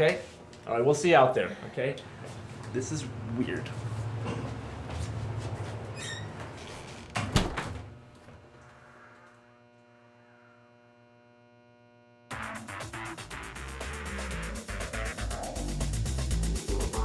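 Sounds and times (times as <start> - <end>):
electrical hum with buzz: 0.0 - 17.0
door creaking: 5.9 - 8.4
door banging shut: 7.1 - 7.9
music: 12.3 - 17.0.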